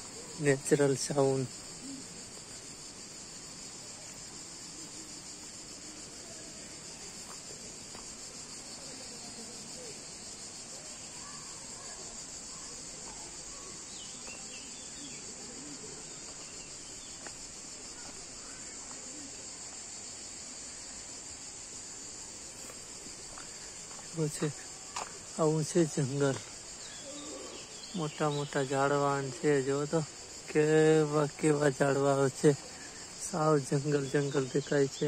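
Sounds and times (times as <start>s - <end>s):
high-pitched insect chorus: 0.0s - 35.0s
faint bird chirps: 26.8s - 28.2s.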